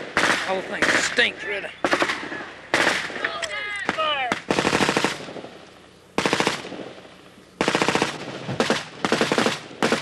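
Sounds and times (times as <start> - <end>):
automatic gunfire bursts: 0.0 - 1.1, 1.8 - 3.1, 3.9 - 5.4, 6.2 - 7.0, 7.6 - 10.0.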